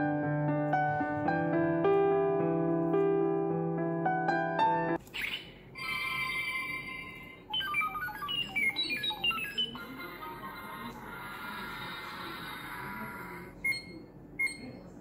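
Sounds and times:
piano music: 0.0 - 5.0
electronic beeping tones: 6.3 - 9.8, 13.6 - 14.7.

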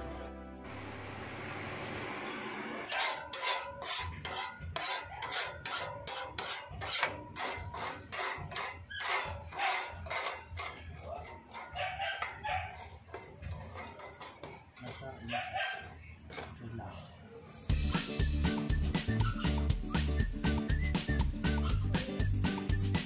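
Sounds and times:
metal tool scraping grill grate: 2.9 - 16.7, 21.4 - 22.7.

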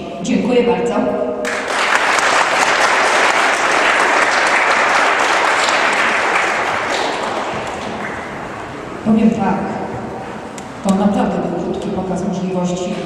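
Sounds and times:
audience applauding: 1.5 - 9.0.

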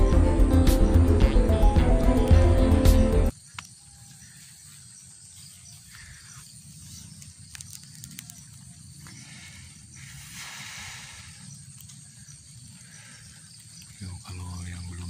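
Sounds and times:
faint clicks: 7.2 - 8.6.

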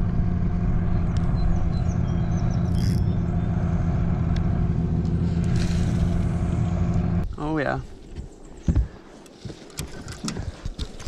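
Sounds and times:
small boat motor humming: 0.0 - 7.2.

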